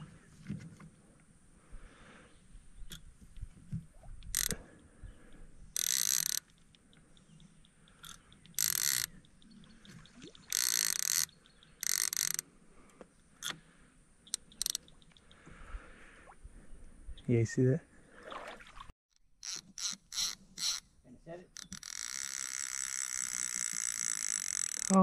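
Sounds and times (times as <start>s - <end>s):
fishing reel ratcheting: 4.2s - 4.6s, 5.7s - 9.4s, 10.5s - 12.4s, 14.3s - 15.0s, 19.4s - 20.9s, 21.5s - 25.0s
fishing reel clicks: 4.2s - 4.7s, 5.7s - 9.6s, 10.4s - 12.4s, 14.3s - 15.3s, 19.4s - 20.9s, 21.5s - 25.0s.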